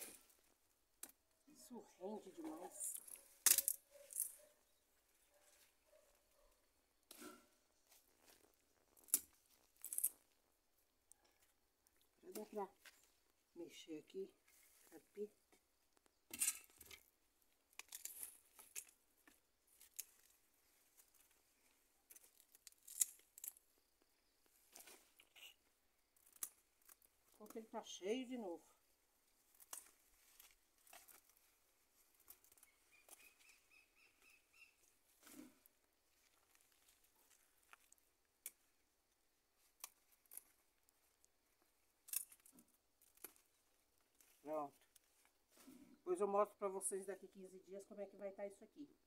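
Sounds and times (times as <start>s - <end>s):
plants rustling and snapping: 2.4s - 4.4s, 7.0s - 10.4s, 11.1s - 13.2s, 16.6s - 23.6s, 24.4s - 25.4s, 26.0s - 27.8s, 29.3s - 33.6s, 35.1s - 38.8s, 39.4s - 45.8s.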